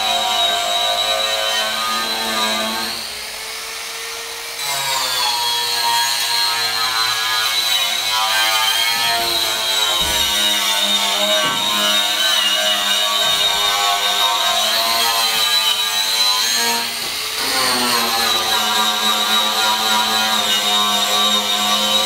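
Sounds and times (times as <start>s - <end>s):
power grinder whining: 0.0s - 22.0s.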